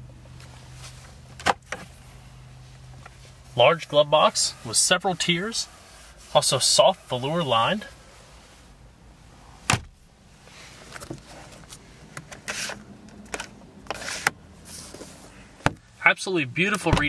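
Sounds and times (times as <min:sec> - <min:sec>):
sun visor clicks and rustles: 0:00.2 - 0:02.1, 0:09.6 - 0:10.0, 0:10.7 - 0:15.9, 0:16.7 - 0:17.0
glove box door clicking shut: 0:09.7 - 0:10.0, 0:16.8 - 0:17.0.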